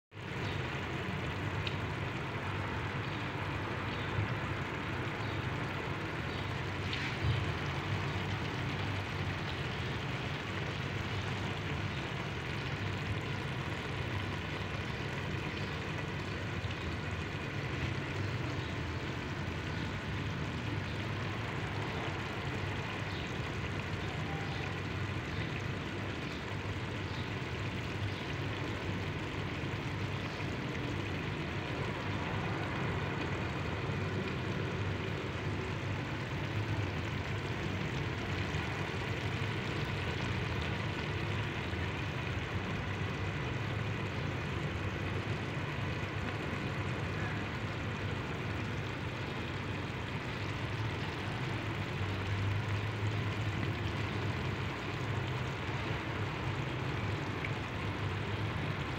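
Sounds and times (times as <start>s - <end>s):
pot simmering low rumble: 0.1s - 58.9s
faint ticks and pops: 1.6s - 2.0s.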